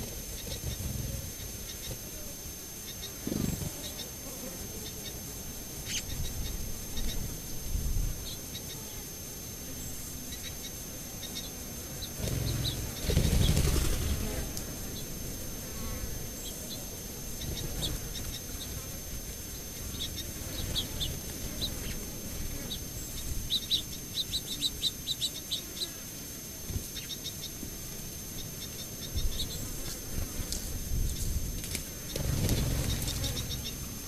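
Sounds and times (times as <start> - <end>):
small birds chirping: 4.8 - 7.3, 9.8 - 14.2, 22.6 - 26.0, 26.8 - 27.7, 32.0 - 34.0.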